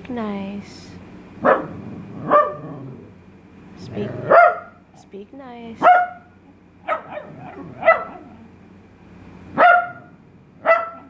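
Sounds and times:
dog barking: 1.4s - 2.7s, 4.2s - 4.8s, 5.8s - 8.4s, 9.6s - 11.0s.

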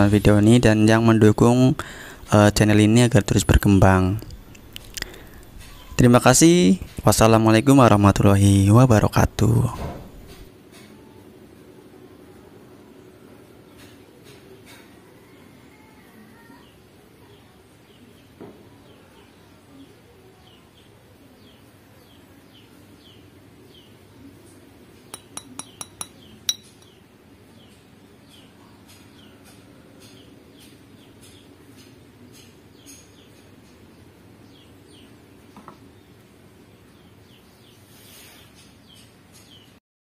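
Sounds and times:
faint bird chirps: 4.3s - 7.0s, 12.2s - 39.8s
glass bottle clinking: 25.2s - 26.9s.

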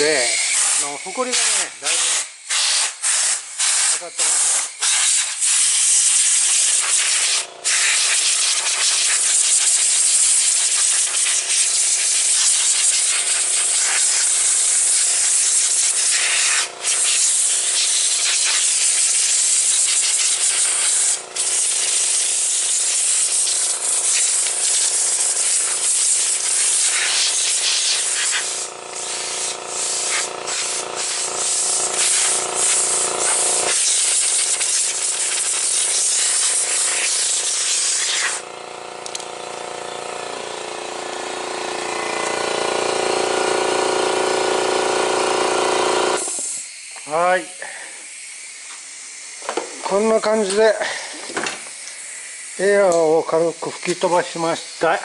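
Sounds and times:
compressed air blow gun hissing: 0.0s - 55.0s.

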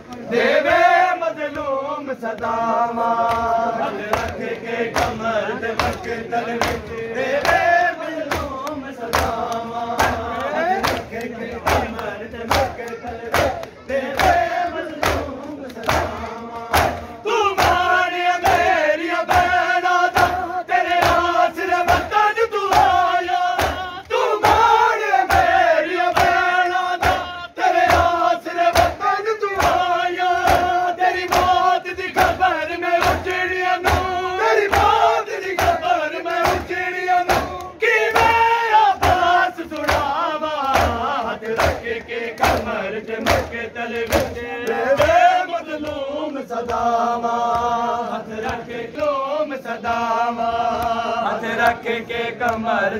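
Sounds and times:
men chanting: 0.0s - 52.9s
hands slapping bare chests: 1.5s - 49.0s.

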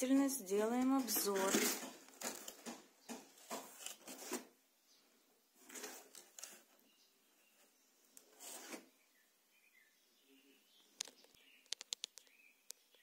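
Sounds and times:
cardboard and plastic rustling: 0.0s - 4.6s, 5.6s - 6.9s, 7.5s - 8.9s.

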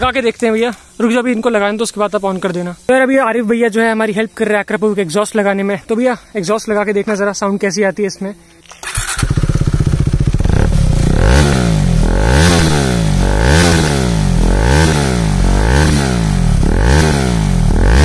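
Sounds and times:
motorcycle engine revving: 8.8s - 18.0s.

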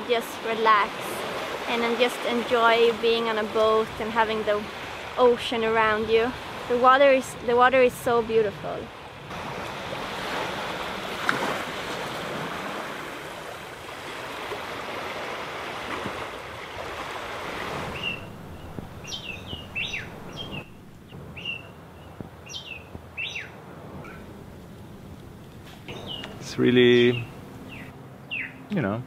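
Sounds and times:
small waves washing on shore: 0.0s - 27.7s
birds chirping downward calls: 17.9s - 24.3s, 25.8s - 28.8s.

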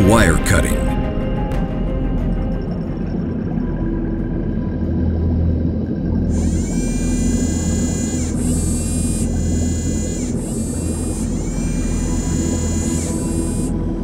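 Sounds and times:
mechanical whine: 2.0s - 14.0s.

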